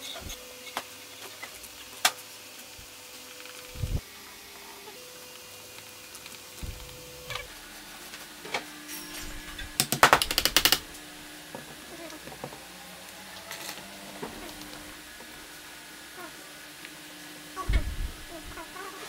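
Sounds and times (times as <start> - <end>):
hammer tapping wood: 9.8 - 10.8.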